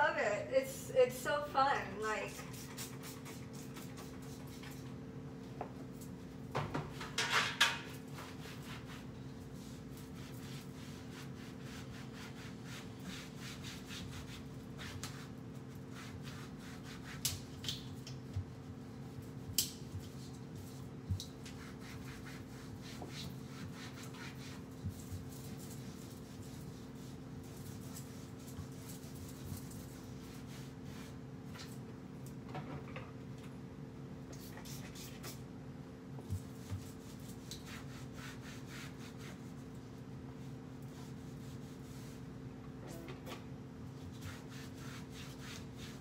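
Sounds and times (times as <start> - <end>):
steady hum: 0.0 - 6.6.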